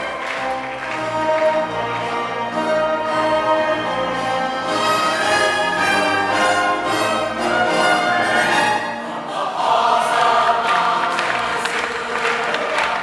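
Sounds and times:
people clapping: 0.0 - 3.1, 10.1 - 13.0
choir singing with orchestra: 0.0 - 13.0.

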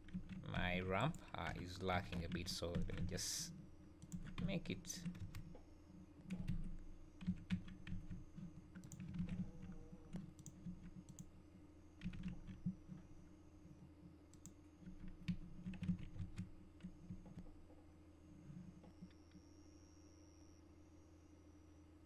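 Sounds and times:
faint low hum: 0.0 - 22.0
keyboard keystrokes: 8.8 - 9.4.

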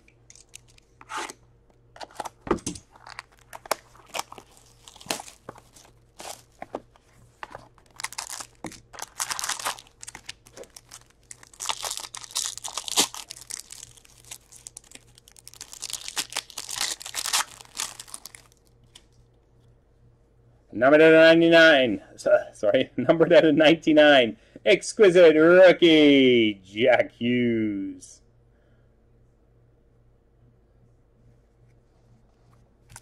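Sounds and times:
plastic wrapper crinkling and tearing: 2.0 - 19.0.

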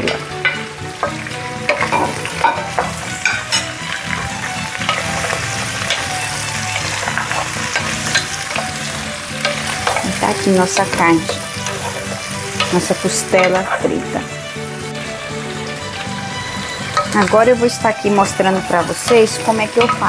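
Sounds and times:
food sizzling in hot oil: 0.0 - 20.0
wooden spoon scraping a pot: 1.0 - 14.1.

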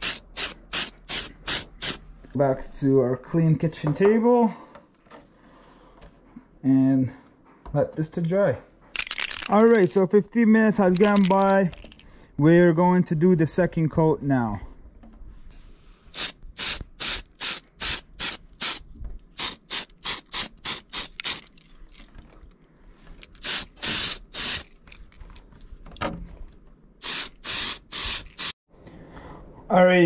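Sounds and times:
spray paint can hissing: 0.0 - 2.0, 16.1 - 18.8, 19.4 - 21.5, 23.4 - 24.8, 27.0 - 28.6.

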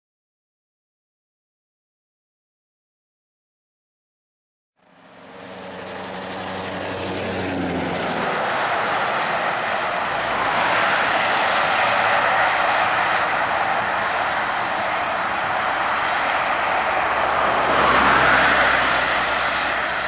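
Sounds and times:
exhaust and road noise: 4.8 - 20.0
truck diesel engine driving past: 4.8 - 20.0.

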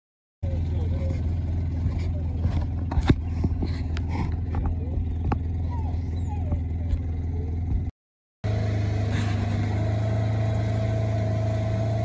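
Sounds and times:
vehicle engine running: 0.4 - 12.0
dogs whining: 3.0 - 7.6.

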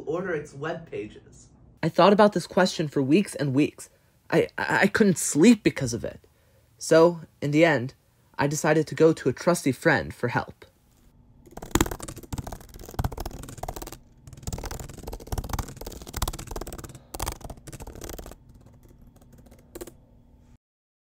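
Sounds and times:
laptop keyboard typing: 11.4 - 20.0.

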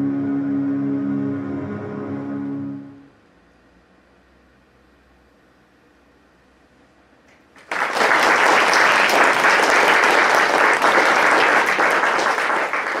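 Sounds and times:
audience applause: 7.6 - 13.0.

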